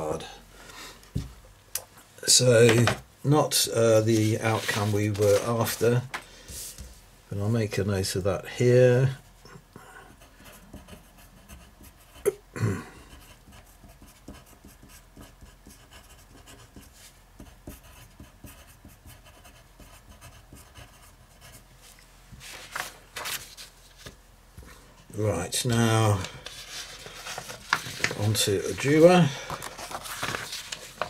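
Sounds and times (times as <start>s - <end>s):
pen scratching on paper: 10.2s - 12.2s, 13.1s - 21.7s.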